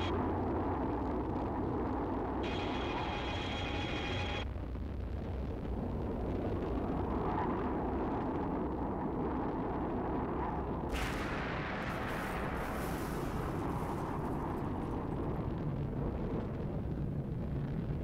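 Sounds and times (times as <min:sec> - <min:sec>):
low rumble: 0:00.0 - 0:18.0
high electronic whine: 0:02.3 - 0:04.5.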